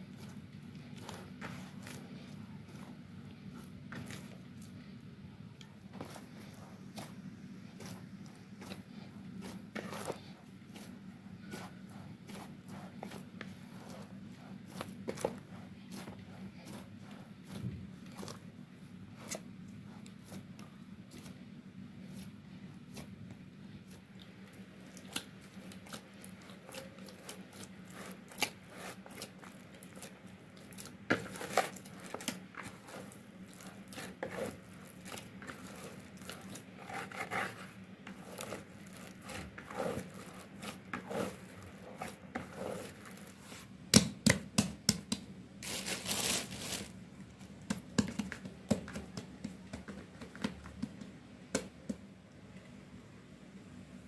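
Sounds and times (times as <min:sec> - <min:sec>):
hands kneading bread dough: 0:00.0 - 0:52.9.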